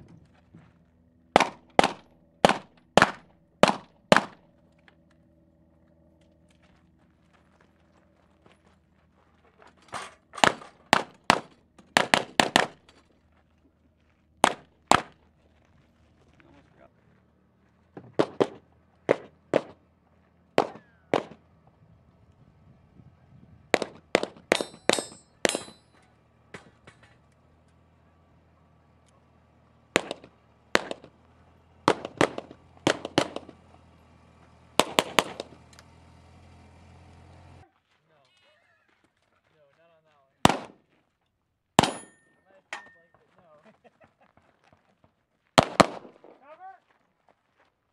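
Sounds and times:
vehicle engine drone: 0.0s - 47.9s
pistol shots: 1.3s - 4.4s, 10.4s - 12.8s, 14.4s - 15.2s, 18.1s - 19.8s, 20.6s - 21.4s, 23.7s - 25.8s, 30.0s - 31.1s, 31.9s - 33.6s, 34.8s - 35.5s, 40.4s - 40.8s, 41.8s - 42.3s, 45.6s - 46.4s.

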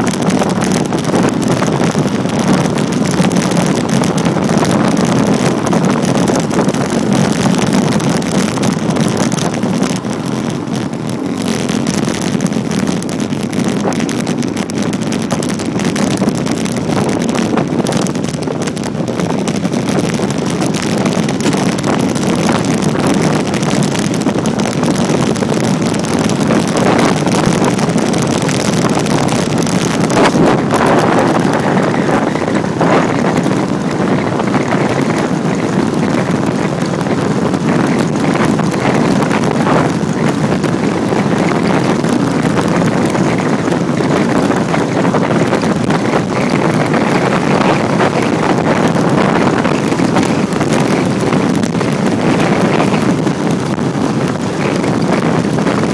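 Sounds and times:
wind buffeting microphone: 0.0s - 55.9s.

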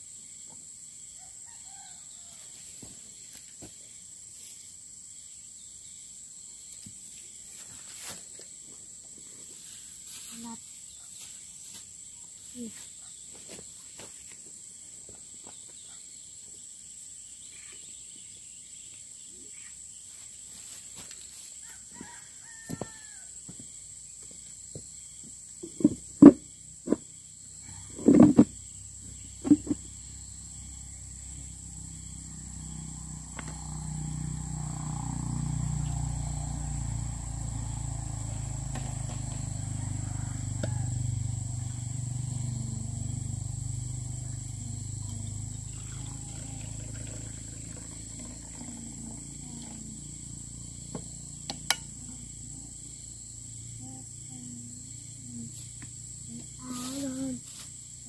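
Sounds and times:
crickets trilling: 0.0s - 58.0s
knocks and thumps on plastic stool: 25.6s - 27.1s, 28.0s - 28.5s, 29.4s - 29.8s
low steady rumble: 39.8s - 50.7s.

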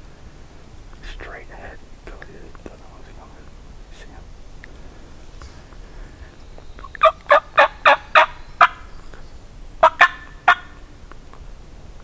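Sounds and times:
turkey yelps: 6.8s - 8.9s, 9.8s - 10.8s.

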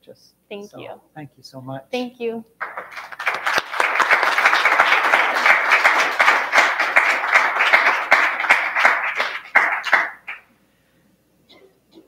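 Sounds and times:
audience applauding: 2.6s - 10.4s.

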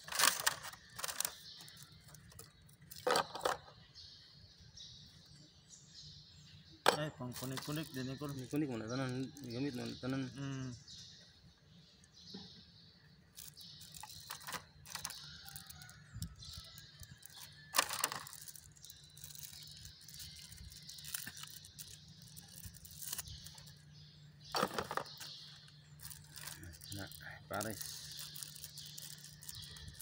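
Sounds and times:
plastic packaging rustling and tearing: 0.0s - 3.3s, 13.4s - 23.8s, 26.0s - 30.0s.

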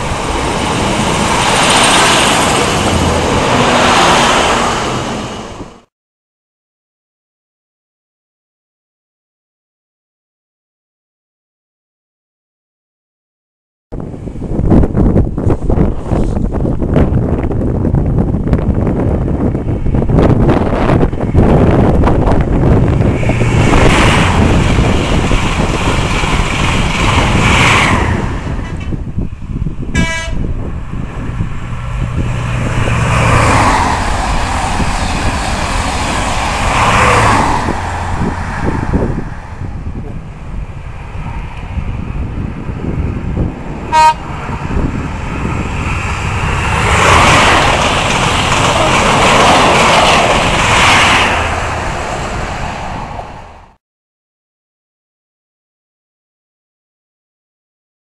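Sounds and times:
train engine and rail noise: 0.0s - 5.9s, 14.0s - 53.8s
train horn toots: 29.9s - 30.5s, 43.9s - 44.5s.

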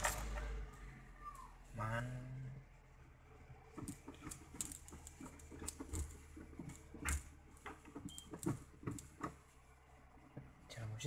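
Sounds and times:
hands handling things clicking: 3.8s - 9.4s.

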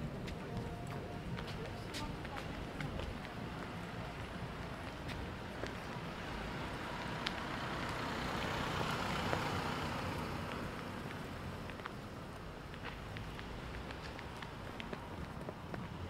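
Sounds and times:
road vehicle passing: 0.0s - 16.0s.

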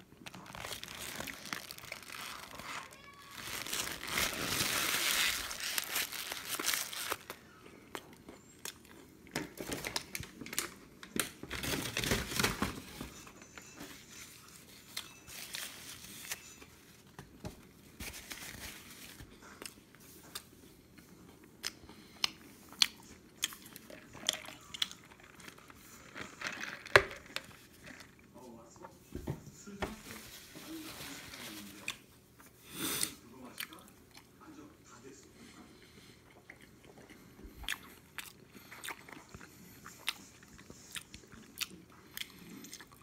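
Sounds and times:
paper crinkling and rustling: 0.2s - 7.4s, 9.5s - 19.4s, 24.8s - 28.3s, 29.7s - 32.0s.

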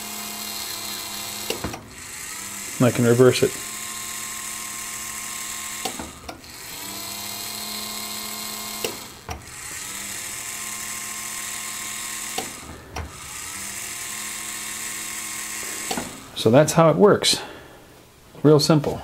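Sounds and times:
small motor whining: 0.0s - 16.4s.

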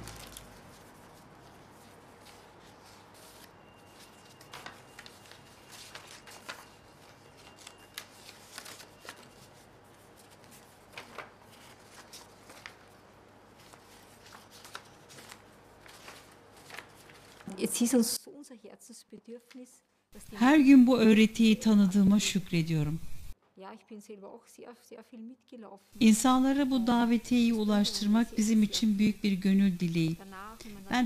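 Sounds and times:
paper leaflets rustling: 0.0s - 17.9s.

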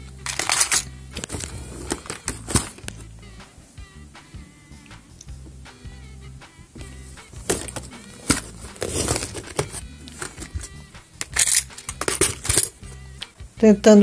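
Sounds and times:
soft background music: 0.0s - 14.0s
jewellery clinking in plastic baskets: 0.2s - 2.8s, 7.4s - 12.8s.

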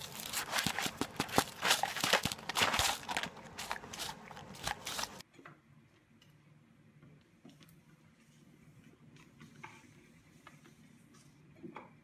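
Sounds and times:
dog crunching crackers: 0.0s - 5.2s.

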